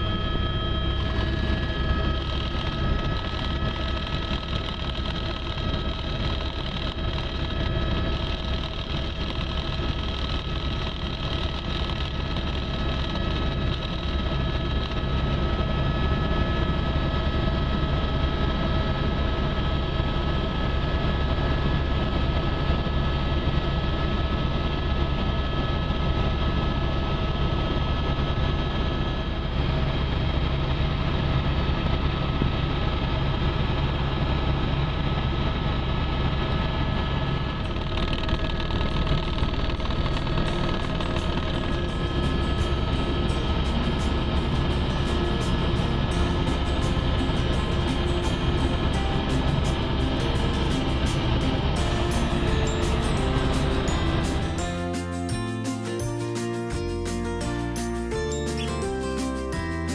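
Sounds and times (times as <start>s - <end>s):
high whine: 0.0s - 22.2s, 35.2s - 59.9s
helicopter rotor and engine drone: 0.0s - 59.9s.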